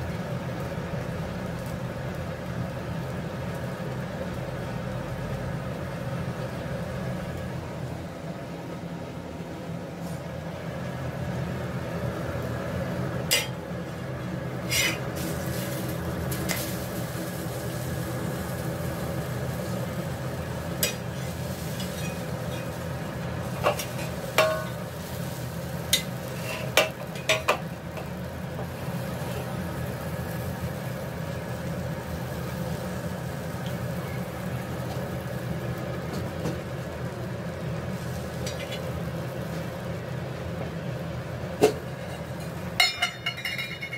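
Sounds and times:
food sizzling on a griddle: 0.0 - 7.2, 11.4 - 43.9
steel spatula scraping a pan: 14.6 - 15.8, 26.0 - 27.5.

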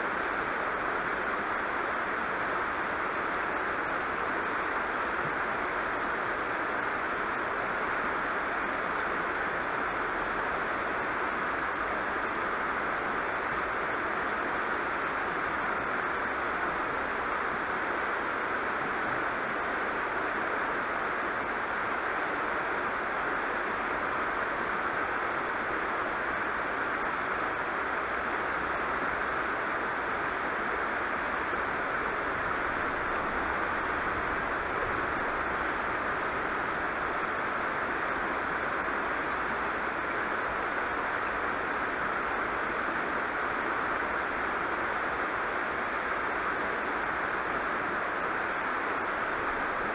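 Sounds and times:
river rushing over rocks: 0.0 - 49.9.

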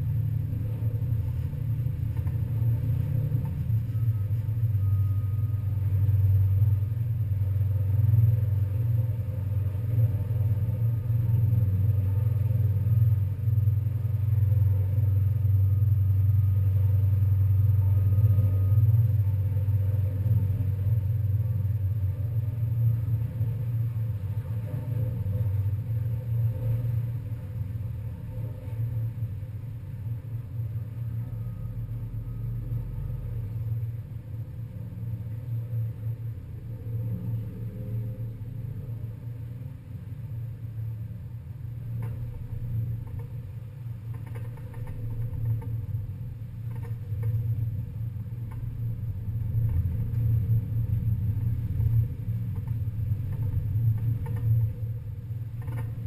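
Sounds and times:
ferry engines rumbling: 0.0 - 56.0
faint clicks: 41.9 - 43.4, 44.0 - 45.9, 52.5 - 54.8.

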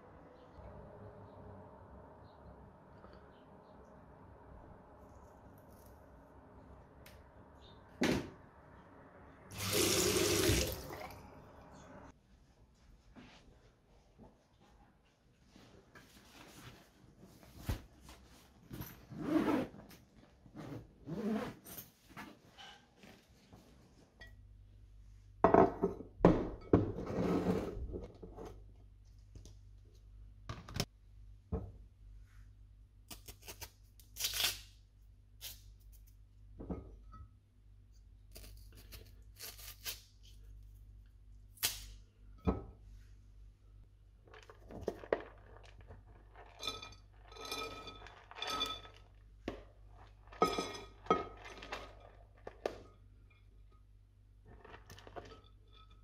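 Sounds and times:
glass dishes clinking: 50.4 - 51.8.

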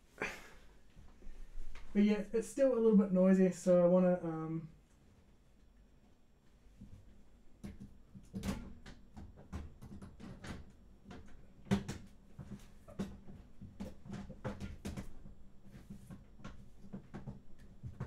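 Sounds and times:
computer fan clicking and rattling: 7.6 - 18.0.

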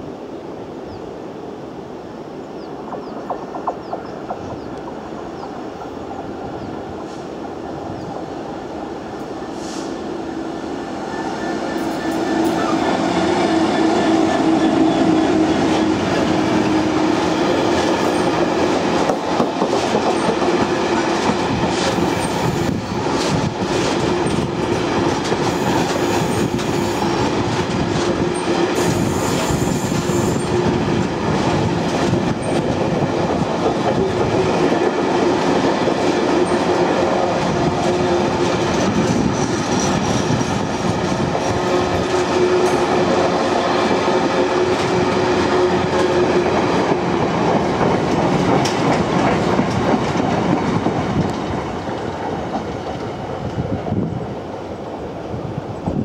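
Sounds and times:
diesel locomotive passing: 0.0 - 56.0
wagon wheels clacking on rails: 2.9 - 5.2, 11.7 - 53.2.

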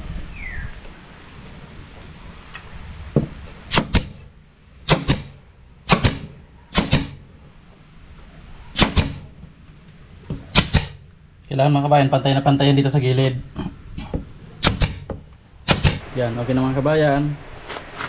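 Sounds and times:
nail gun shots: 3.7 - 7.3, 8.8 - 9.3, 10.5 - 11.1, 14.6 - 16.0.

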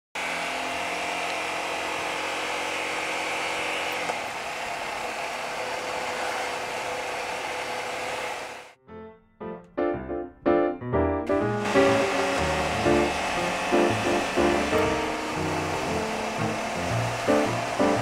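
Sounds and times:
motorcycle engine running: 11.6 - 18.0.

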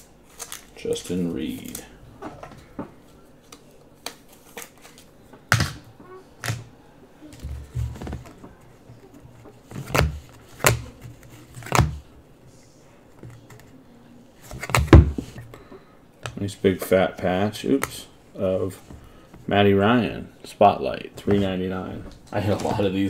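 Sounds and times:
cards thudding on table: 5.5 - 5.8.

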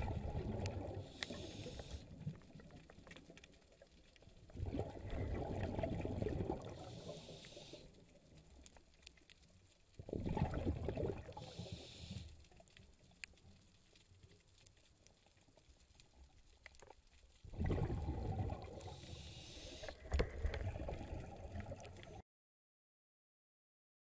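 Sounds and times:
diver exhaling bubbles: 0.0 - 2.7, 4.5 - 7.8, 10.0 - 12.2, 17.5 - 22.2
regulator air hiss: 1.0 - 2.0, 6.8 - 7.9, 11.4 - 12.3, 18.8 - 19.9.

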